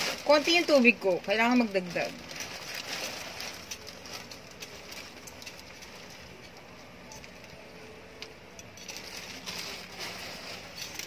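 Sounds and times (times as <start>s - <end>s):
noodles sizzling: 0.0s - 6.4s.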